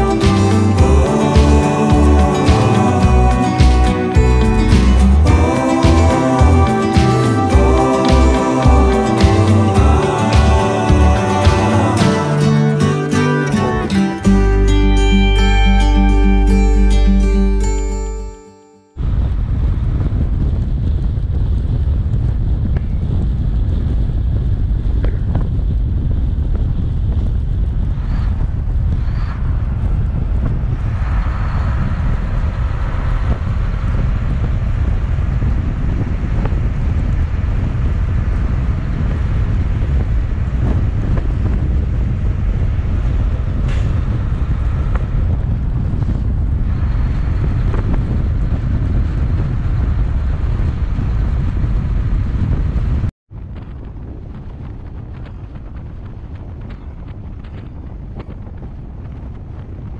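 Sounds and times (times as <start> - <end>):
wind rush on microphone: 0.0 - 16.7, 19.0 - 59.9
truck and tyres rumbling: 19.4 - 59.9.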